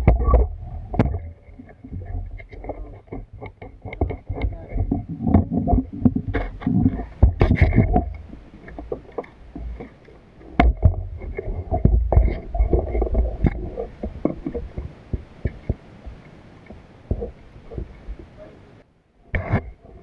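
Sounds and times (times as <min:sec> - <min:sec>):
clicks and knocks: 0:00.0 - 0:15.8
water sloshing and splashing: 0:00.0 - 0:18.5.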